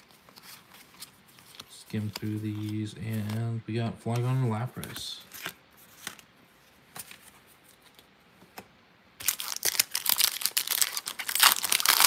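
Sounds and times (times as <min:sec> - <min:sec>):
foil wrapper crinkling: 0:09.2 - 0:12.0.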